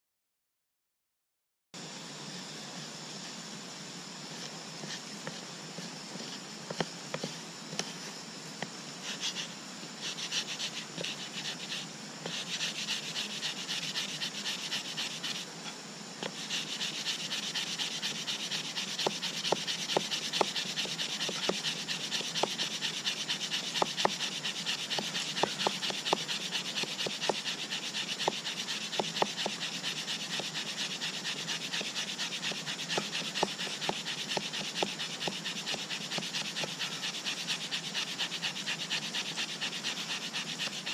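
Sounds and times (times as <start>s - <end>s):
wooden stick scraping wood: 9.0s - 40.9s.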